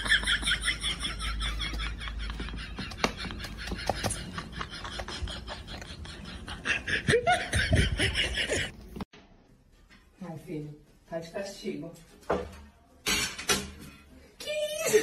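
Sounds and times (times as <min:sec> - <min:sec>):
person laughing: 0:00.0 - 0:08.7.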